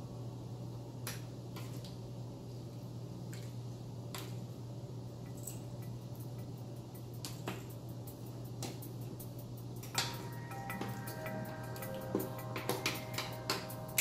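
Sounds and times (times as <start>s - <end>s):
low hum: 2.2s - 14.0s.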